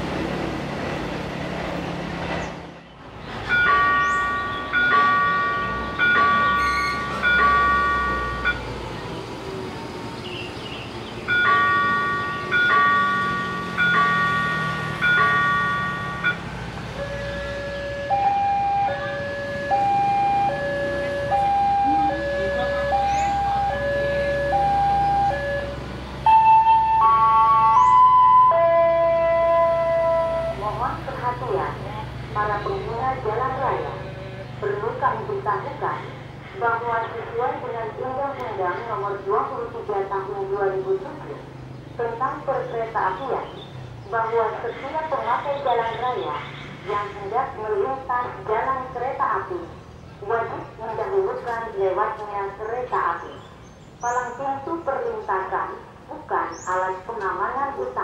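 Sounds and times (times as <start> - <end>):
outdoor background noise: 0.0 - 58.0
level crossing warning bell: 3.4 - 8.8, 11.2 - 31.7.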